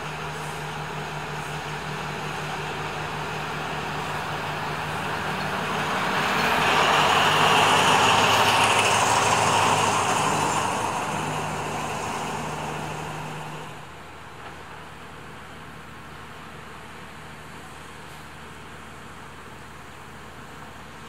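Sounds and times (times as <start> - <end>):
diesel locomotive engine passing: 0.0 - 14.9.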